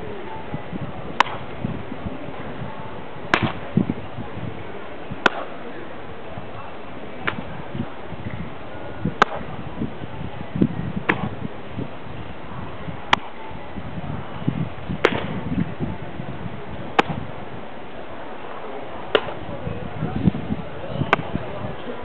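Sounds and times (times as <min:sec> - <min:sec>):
baseball smacking into gloves: 0:03.3 - 0:03.6, 0:05.2 - 0:05.5.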